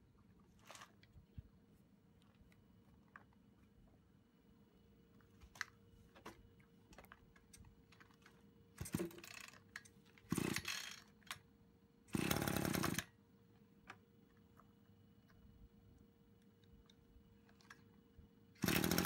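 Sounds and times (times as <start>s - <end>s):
recoil starter pulls whirring: 12.1s - 13.1s, 18.6s - 19.0s.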